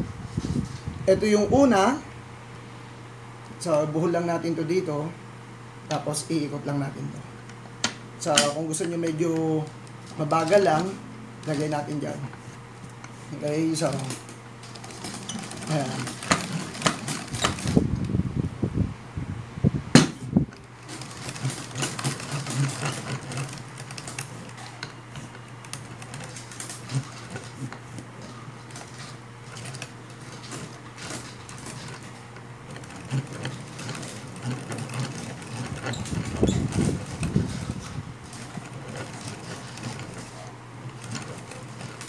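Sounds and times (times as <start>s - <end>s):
coil-winding machine gears clattering: 13.4s - 17.8s, 20.6s - 42.0s.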